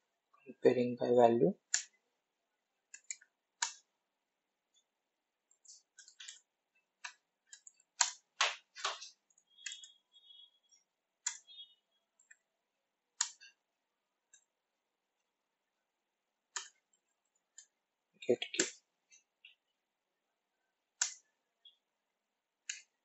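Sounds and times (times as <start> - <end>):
keyboard keystroke clicks: 11.2 - 11.6, 13.2 - 13.5, 16.6 - 16.8, 18.5 - 18.8.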